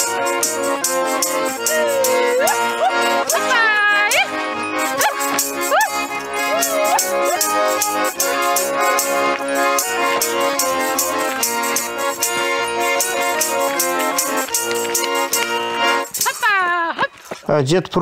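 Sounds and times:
tambourine jingling: 0.0s - 16.9s
accordion chords: 0.0s - 17.4s.

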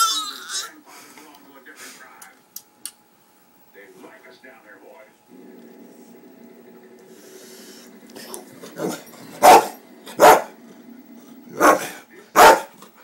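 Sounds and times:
dog barking: 8.8s - 10.6s, 11.5s - 12.8s.

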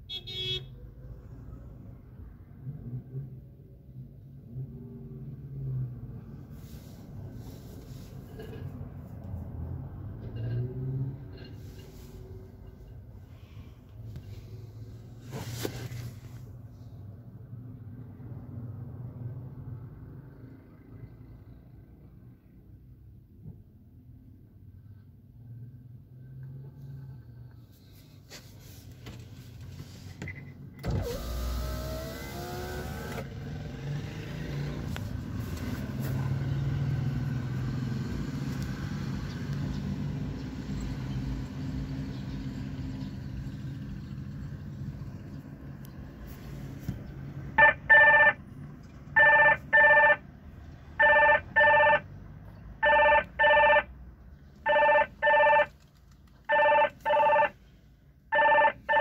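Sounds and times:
car running low hum: 1.1s - 58.9s
phone ringing: 47.6s - 48.4s, 49.2s - 50.2s, 51.0s - 52.0s, 52.8s - 53.9s, 54.7s - 55.7s, 56.5s - 57.5s, 58.3s - 59.0s.

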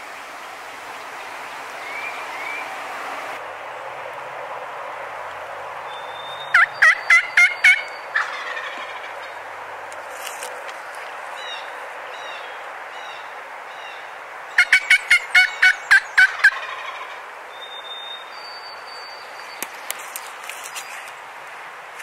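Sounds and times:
songbird chirps: 0.3s - 2.8s, 5.8s - 8.2s, 17.5s - 21.3s
turkey yelps: 6.2s - 9.4s, 14.6s - 17.2s.

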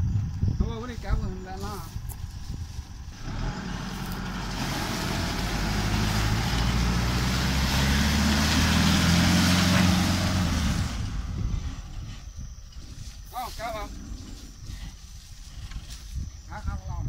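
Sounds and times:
diesel engine pulling hard: 2.9s - 12.2s
tyres churning through mud: 3.1s - 16.1s.

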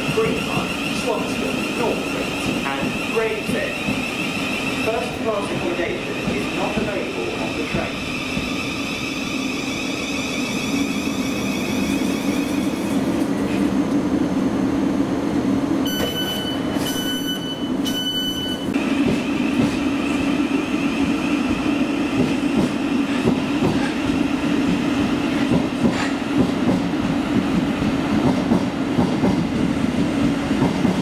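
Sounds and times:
electric train hum and whine: 0.0s - 31.0s
door closing warning beeps: 15.9s - 18.7s.

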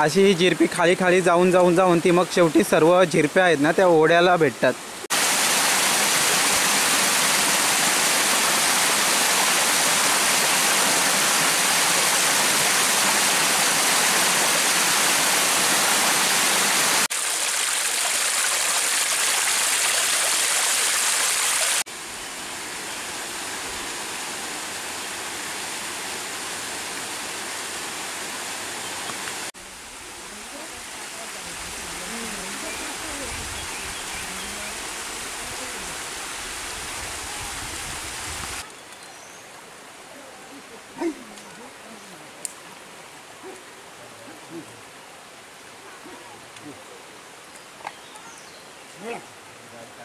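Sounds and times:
water splashing over rocks: 5.1s - 21.9s.

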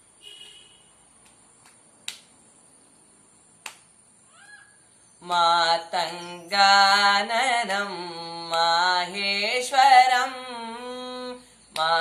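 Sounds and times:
hand claps: 1.2s - 2.3s, 3.6s - 3.9s, 11.8s - 12.0s
young man singing: 5.2s - 12.0s.

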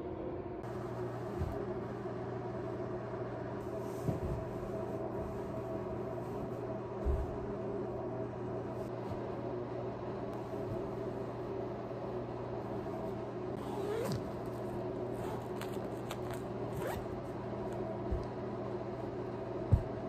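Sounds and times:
zipper rasps: 13.6s - 14.3s, 15.2s - 17.0s.

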